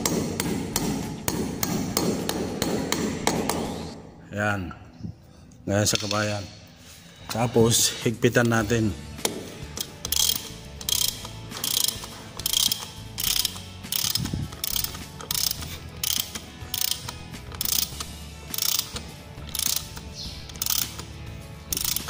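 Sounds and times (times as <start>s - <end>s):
ratchet wrench clicking: 9.7s - 22.0s.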